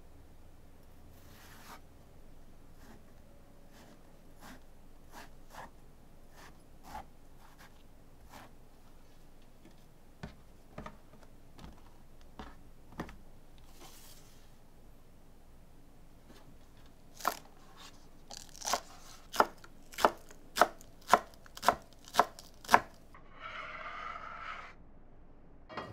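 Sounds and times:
brief scrape: 0:23.3 - 0:24.8.

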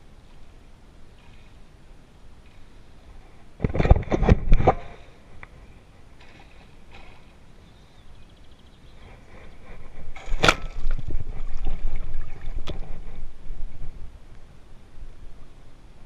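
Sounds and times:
rustling and sloshing: 0:09.0 - 0:14.2.

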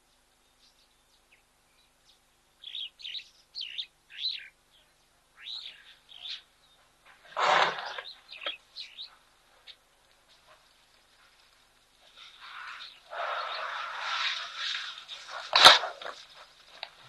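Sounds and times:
birds chirping and whistling: 0:00.5 - 0:09.8, 0:12.1 - 0:15.6
elephant blowing through trunk: 0:07.3 - 0:08.1, 0:12.4 - 0:16.2.

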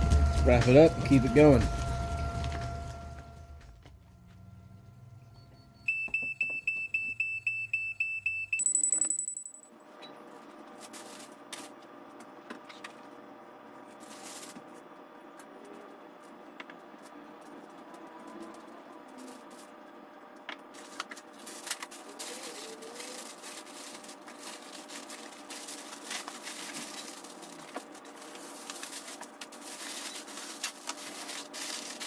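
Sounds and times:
electronic alarm beeping: 0:00.0 - 0:03.7, 0:04.5 - 0:09.6
aluminium foil crinkling: 0:10.7 - 0:11.8, 0:13.9 - 0:14.7, 0:17.0 - 0:19.8, 0:20.7 - 0:32.0.

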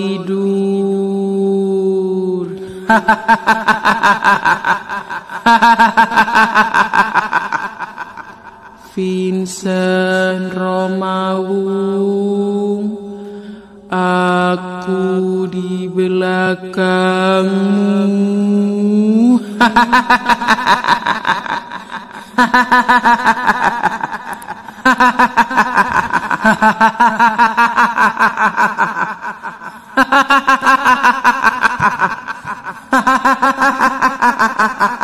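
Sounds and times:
high-pitched cackling laughter: 0:02.9 - 0:08.7, 0:19.6 - 0:35.0.

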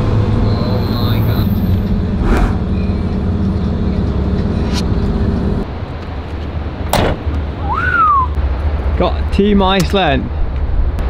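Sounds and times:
vehicle engine and road noise: 0:00.0 - 0:11.0
hum: 0:00.3 - 0:05.6.

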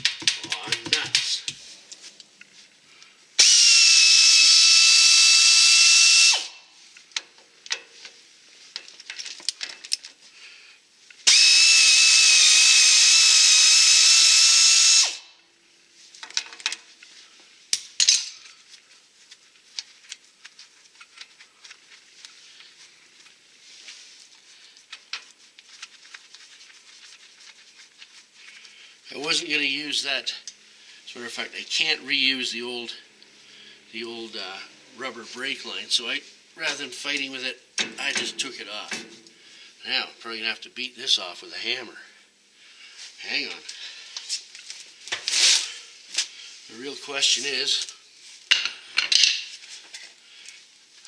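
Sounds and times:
air ratchet whining: 0:03.4 - 0:06.5, 0:11.3 - 0:15.2
tools clinking: 0:18.0 - 0:18.5.

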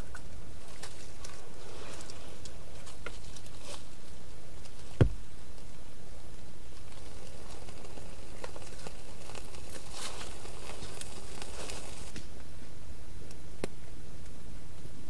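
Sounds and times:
twigs rustling and crackling: 0:00.0 - 0:14.9
kindling snapping: 0:06.7 - 0:12.3.

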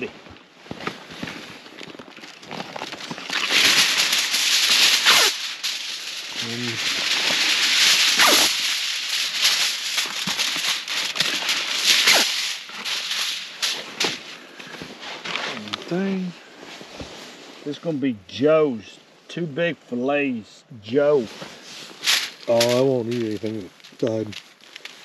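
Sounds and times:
aluminium foil crinkling: 0:01.6 - 0:15.9, 0:21.8 - 0:25.0.

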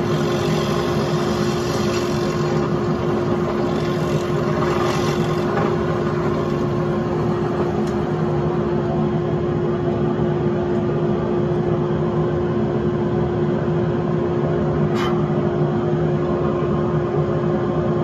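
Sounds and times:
electric motor humming: 0:00.0 - 0:08.6.

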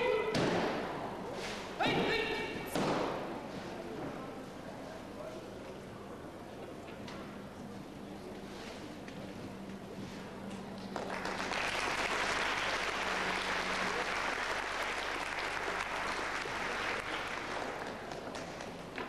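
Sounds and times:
audience applauding: 0:10.8 - 0:18.9.

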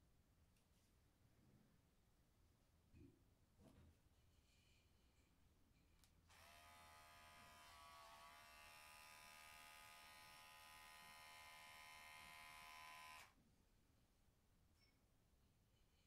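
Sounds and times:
electric hair clipper buzzing: 0:06.3 - 0:13.4.

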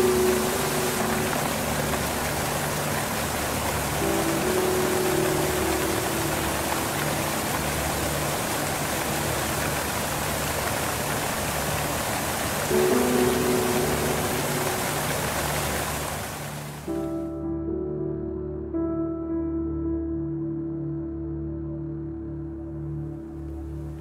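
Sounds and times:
music with held chords: 0:00.0 - 0:09.2, 0:12.7 - 0:15.9, 0:16.9 - 0:24.0
steady hiss: 0:00.0 - 0:17.1.

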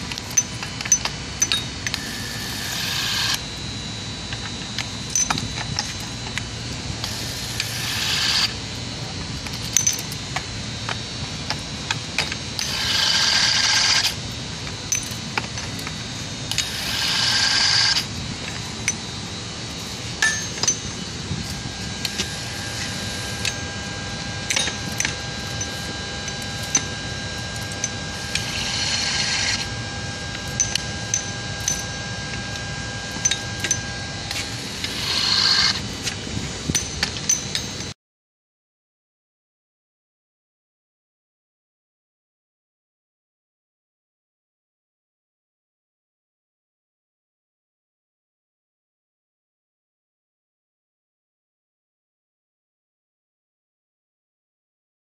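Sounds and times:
electric torque wrench running: 0:00.0 - 0:37.8.

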